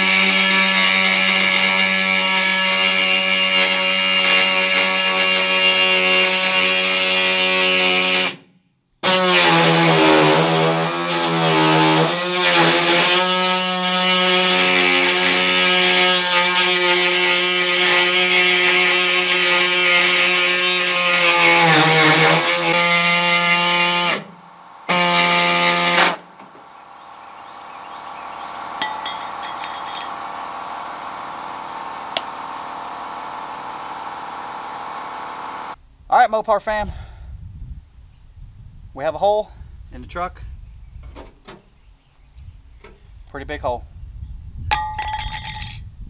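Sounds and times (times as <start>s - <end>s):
pneumatic saw cutting sheet metal: 0.0s - 26.7s, 28.5s - 35.8s
quieter steady noise: 23.0s - 36.4s.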